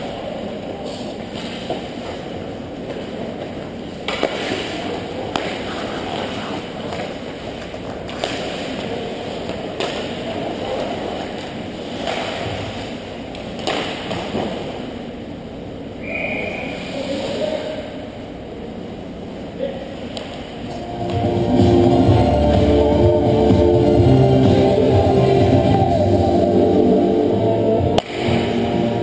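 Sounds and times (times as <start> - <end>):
skates scraping ice: 0.9 - 13.0
hockey sticks and puck clicking: 2.9 - 10.4
arena rumble: 20.7 - 29.0.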